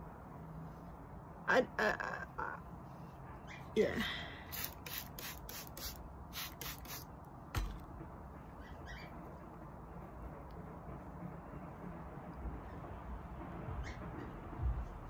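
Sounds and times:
spray bottle spraying: 0:04.5 - 0:07.1
sharp knock: 0:07.5 - 0:07.9.

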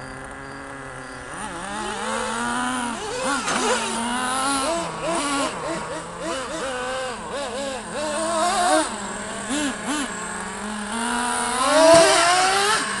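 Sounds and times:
small nitro engines revving: 0:00.0 - 0:13.0.

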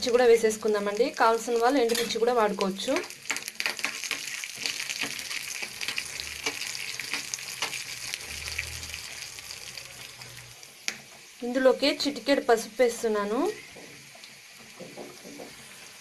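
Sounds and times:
spices sizzling in hot oil: 0:00.0 - 0:16.0
spoon stirring in pan: 0:03.0 - 0:09.3.

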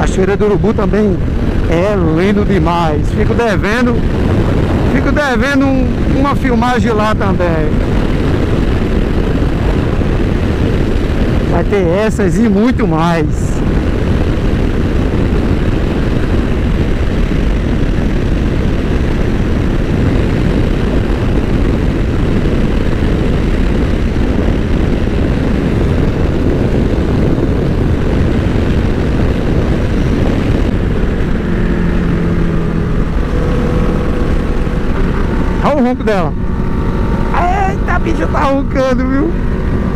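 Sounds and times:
motorcycle engine running: 0:00.0 - 0:39.9
wind rush on microphone: 0:00.0 - 0:39.9.

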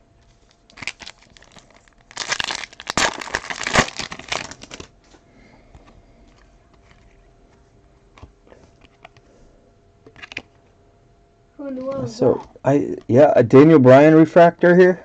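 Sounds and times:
foil wrapper tearing and crinkling: 0:00.5 - 0:04.9.

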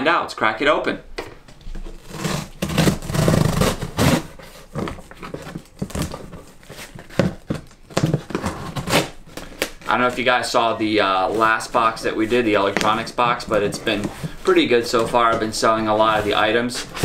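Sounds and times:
cardboard rustling: 0:01.7 - 0:17.0
cardboard box tearing: 0:01.9 - 0:10.2.

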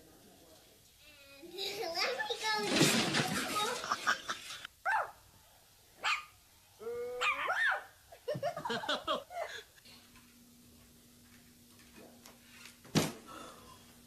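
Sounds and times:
puppy yipping: 0:04.9 - 0:05.2, 0:06.0 - 0:06.4, 0:07.2 - 0:07.9.

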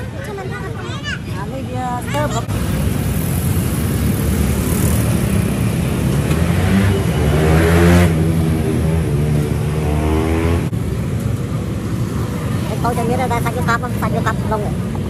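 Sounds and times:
street traffic rumble: 0:00.0 - 0:15.0
motorbike engine passing: 0:02.2 - 0:10.7.

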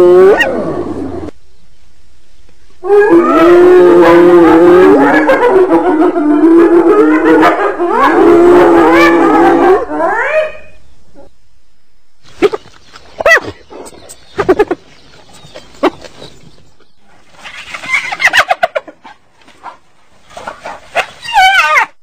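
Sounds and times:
hyena giggling calls: 0:12.3 - 0:16.5, 0:17.7 - 0:19.2.

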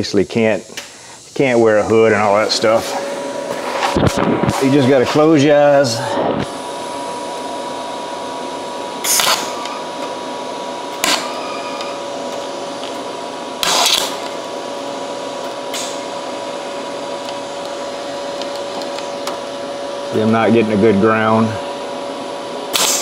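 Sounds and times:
steady machine hum: 0:00.0 - 0:23.0
welding arc bursts: 0:09.0 - 0:09.7, 0:13.5 - 0:14.5, 0:22.7 - 0:23.0.

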